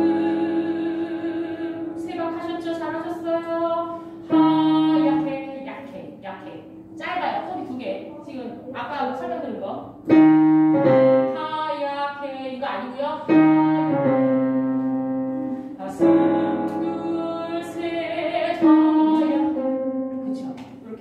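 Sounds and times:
piano playing slow chords: 0.0s - 5.6s, 9.9s - 11.8s, 13.3s - 20.5s
person singing: 15.8s - 19.7s.

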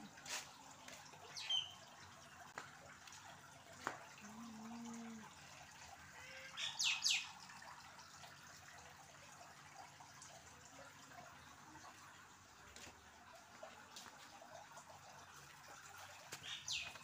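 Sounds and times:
small bird chirping: 1.4s - 1.8s, 16.4s - 17.0s.

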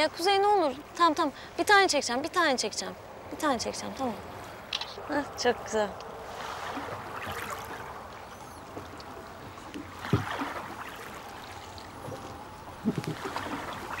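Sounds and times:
oars splashing in water: 6.0s - 14.0s
low knocks: 10.0s - 10.4s.

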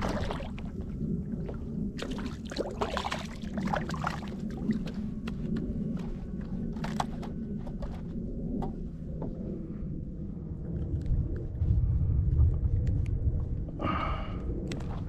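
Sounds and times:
water splashing against kayak: 0.0s - 5.0s
short splashes and crackles: 0.0s - 5.1s
steady low rumble: 0.0s - 15.0s.

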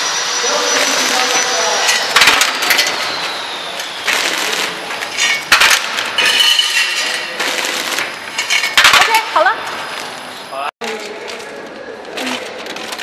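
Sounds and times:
metallic clinking of fasteners: 5.0s - 9.2s.

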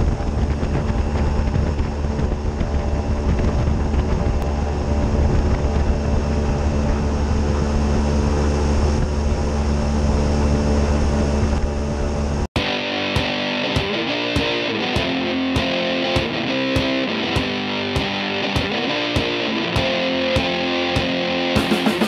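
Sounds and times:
airboat engine and propeller drone: 0.0s - 12.5s.

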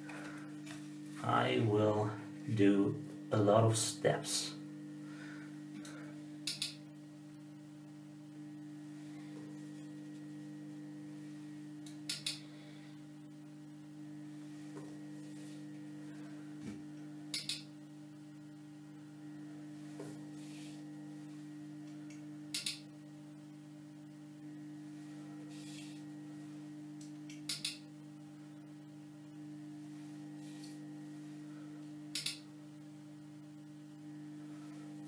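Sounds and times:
electrical mains hum: 0.0s - 35.0s
sharp double clicks of switch: 6.4s - 6.8s, 12.1s - 12.4s, 17.3s - 17.7s, 22.5s - 22.8s, 27.0s - 27.8s, 32.1s - 32.4s.

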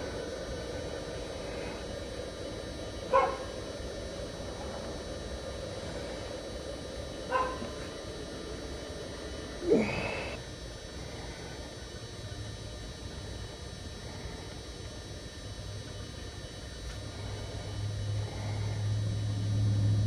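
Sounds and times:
steady background hum: 0.0s - 20.0s
dog barking and yelping: 3.1s - 3.4s, 7.3s - 7.6s.

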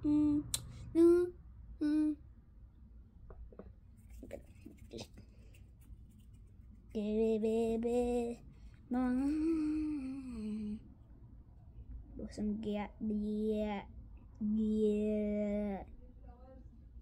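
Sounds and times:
boy humming: 0.0s - 2.2s, 7.9s - 10.8s.

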